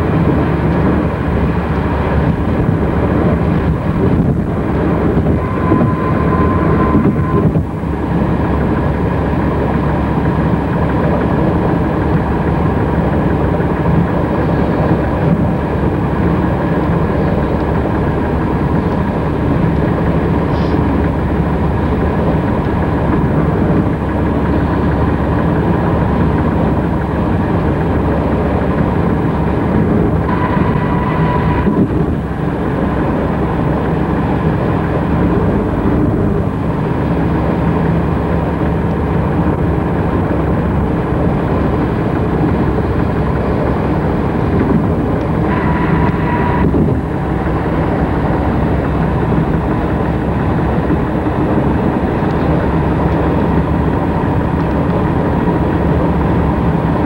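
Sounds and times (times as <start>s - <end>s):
car road noise: 0.0s - 57.0s
high whine: 0.0s - 57.0s.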